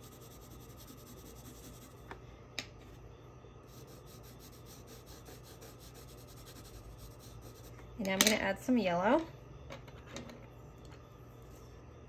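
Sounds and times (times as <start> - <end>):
pencil scratching on paper: 0.0 - 2.0, 3.7 - 7.8.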